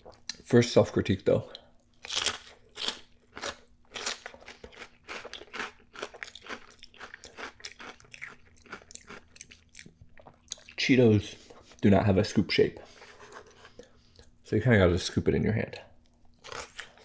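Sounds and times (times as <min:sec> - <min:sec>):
crunching and chewing: 0:01.5 - 0:10.8, 0:16.0 - 0:17.0.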